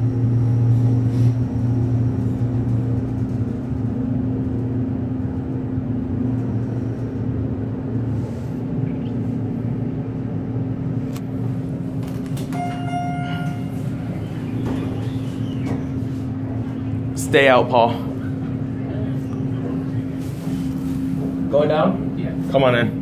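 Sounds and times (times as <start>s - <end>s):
elevator low hum: 0.0s - 23.0s
elevator click: 11.9s - 16.9s
electronic chime tone: 12.5s - 14.6s.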